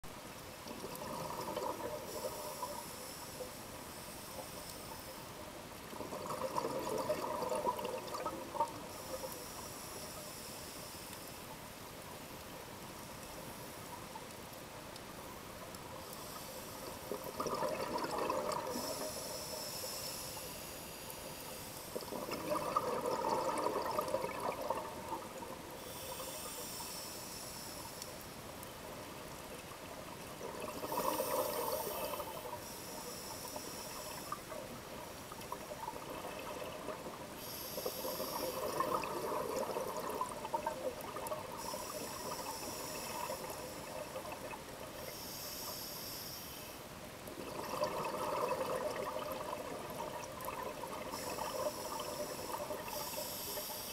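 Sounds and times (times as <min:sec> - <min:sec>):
exhaled bubbles rushing: 0:00.7 - 0:02.3, 0:05.9 - 0:08.8, 0:17.1 - 0:19.0, 0:22.0 - 0:25.6, 0:30.2 - 0:31.7, 0:35.5 - 0:37.3, 0:38.1 - 0:44.9, 0:47.3 - 0:53.0
regulator inhalation hiss: 0:02.1 - 0:05.4, 0:08.8 - 0:11.5, 0:16.0 - 0:17.1, 0:18.6 - 0:22.1, 0:25.7 - 0:28.2, 0:30.8 - 0:34.6, 0:37.4 - 0:39.0, 0:41.5 - 0:44.2, 0:45.0 - 0:46.8, 0:51.0 - 0:53.9.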